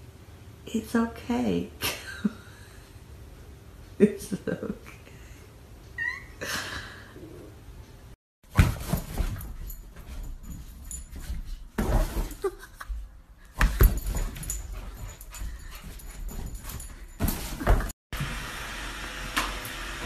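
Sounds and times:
dog whimpering: 0:06.0 - 0:06.4
dog thumping and scrabbling: 0:08.5 - 0:18.0.

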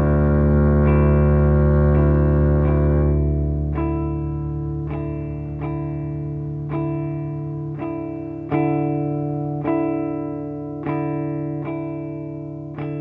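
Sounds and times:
steady low drone: 0:00.0 - 0:07.8
guitar picking single notes: 0:00.0 - 0:13.0.

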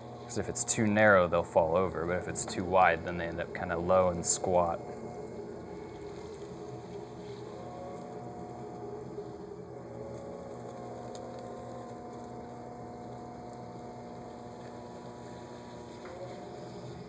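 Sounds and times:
potter's wheel motor hum: 0:00.0 - 0:17.0.

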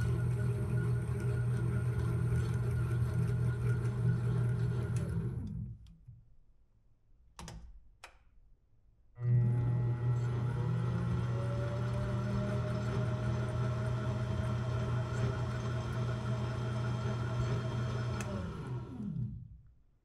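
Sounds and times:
lathe motor humming: 0:09.2 - 0:19.2.

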